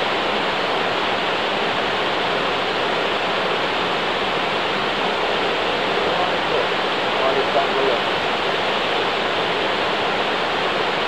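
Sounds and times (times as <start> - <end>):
small waterfall rushing: 0.0 - 11.0.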